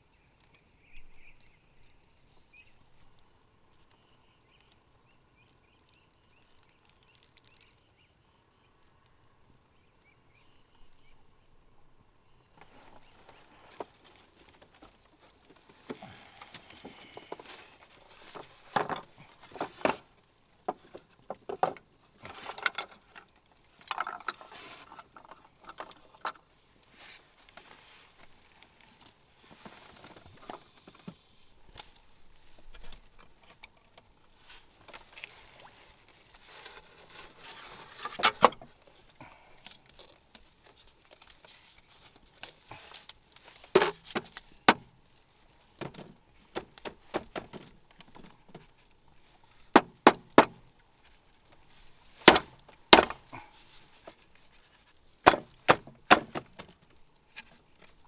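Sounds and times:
hollow knocks on bamboo floor: 0:43.7 - 0:44.9, 0:49.7 - 0:50.6, 0:55.2 - 0:56.7.

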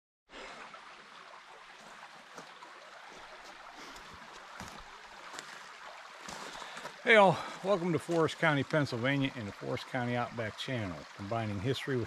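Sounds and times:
stream babbling over rocks: 0:00.3 - 0:12.0.

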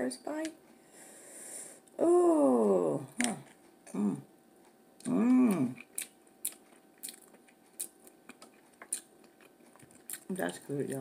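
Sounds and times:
person humming in enjoyment: 0:02.0 - 0:03.1, 0:03.9 - 0:04.3, 0:05.0 - 0:05.8
person chewing: 0:03.1 - 0:11.0
mouth clicks and smacks: 0:05.0 - 0:10.3.

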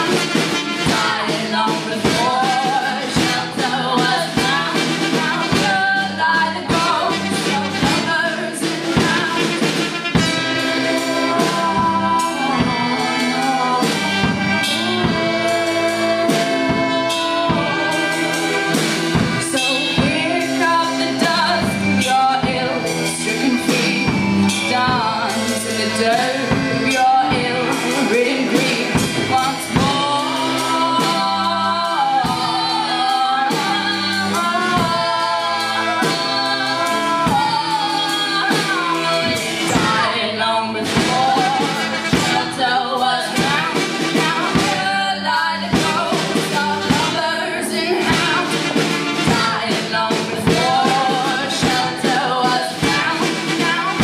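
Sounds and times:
live band music: 0:00.0 - 0:54.0
woman singing: 0:00.0 - 0:54.0.

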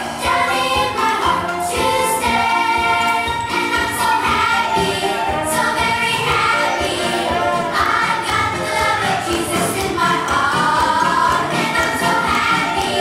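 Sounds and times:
group of people singing: 0:00.0 - 0:13.0
instrumental accompaniment: 0:00.0 - 0:13.0.

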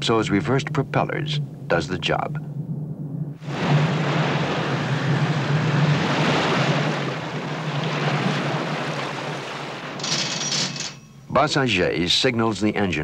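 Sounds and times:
churning water rushing: 0:03.4 - 0:11.2
ship engines droning: 0:03.4 - 0:11.4.

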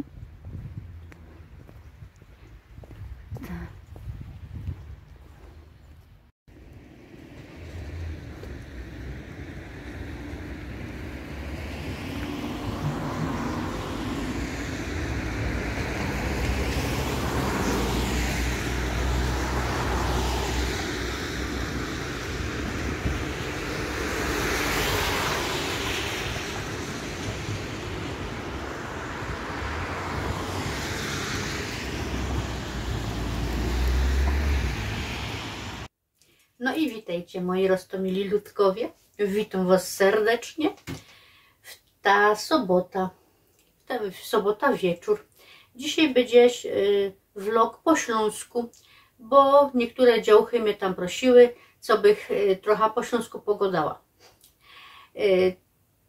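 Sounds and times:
wind rumble on microphone: 0:00.0 - 0:35.9
aircraft passing overhead: 0:06.6 - 0:35.9.

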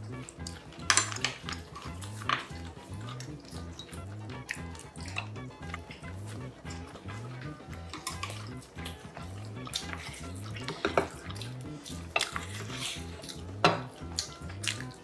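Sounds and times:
soft music with bass beat: 0:00.0 - 0:15.0
utensils clinking on ceramic bowls: 0:00.8 - 0:02.7, 0:07.9 - 0:08.5, 0:09.8 - 0:11.3.

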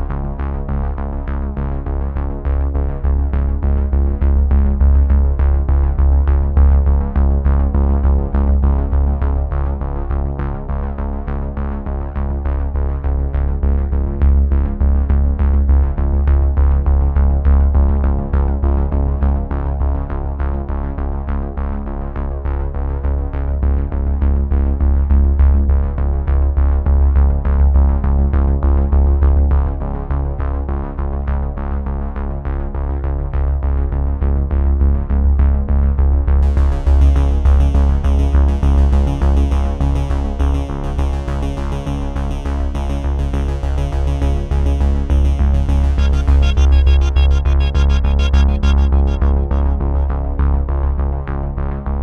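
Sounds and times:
synthesizer music with deep bass: 0:36.3 - 0:52.0.

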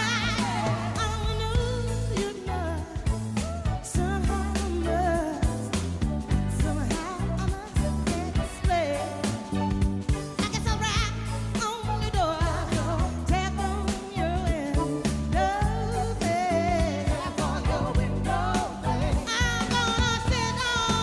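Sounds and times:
funk soul band playing: 0:00.0 - 0:21.0
woman singing: 0:00.0 - 0:21.0.

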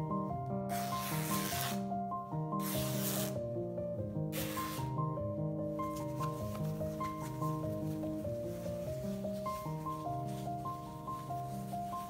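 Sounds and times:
soft background music: 0:00.0 - 0:12.0
cloth rustling: 0:05.8 - 0:12.0.

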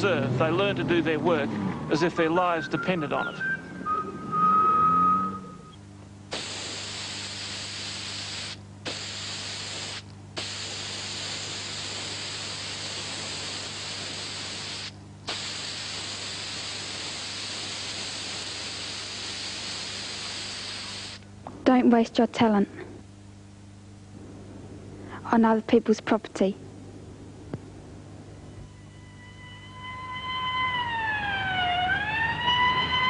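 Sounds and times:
low steady hum: 0:00.0 - 0:33.0
spray can hissing: 0:06.3 - 0:21.2.

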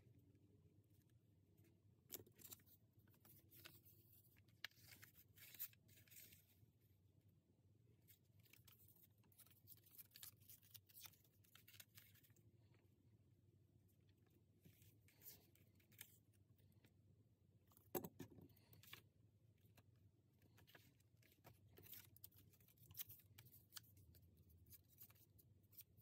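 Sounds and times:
paper rustling and crinkling: 0:02.1 - 0:06.5, 0:08.1 - 0:12.3.

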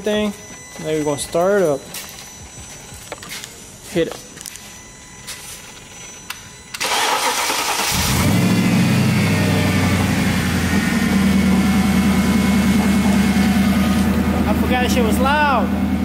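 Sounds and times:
car engine starting and idling: 0:06.7 - 0:16.0.

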